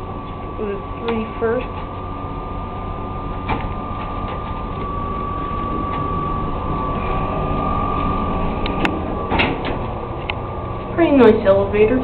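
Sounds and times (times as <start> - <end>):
elevator rumble and whine: 0.0 - 12.0.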